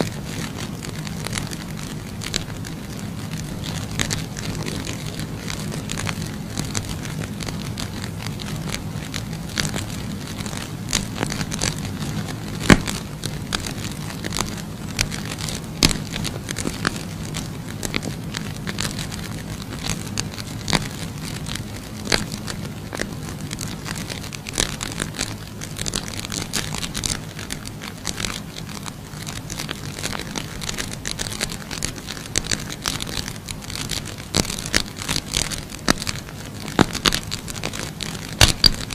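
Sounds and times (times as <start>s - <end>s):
low hum: 0.0s - 38.9s
matches burning and crackling: 0.0s - 38.9s
sharp pops: 0.0s - 38.9s.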